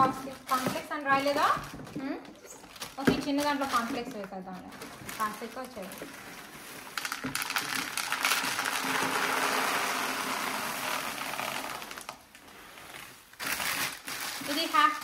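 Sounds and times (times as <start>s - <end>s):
cereal pouring into plastic canister: 6.0s - 12.2s.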